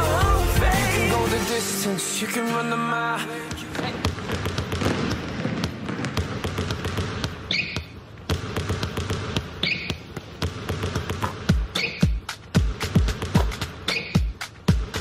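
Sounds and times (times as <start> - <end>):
basketball bouncing on wooden floor: 3.7 - 14.9
sneaker squeak: 7.4 - 8.0, 9.4 - 10.2, 11.7 - 12.2, 13.8 - 14.3.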